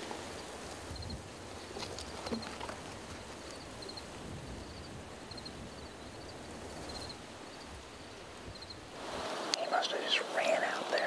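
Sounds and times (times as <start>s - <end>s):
leaves rustling: 0.0s - 11.0s
wind: 0.0s - 11.0s.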